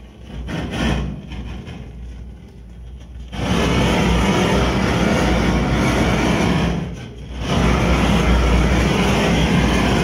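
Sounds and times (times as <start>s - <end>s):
gas torch flame blowing: 3.3s - 10.0s.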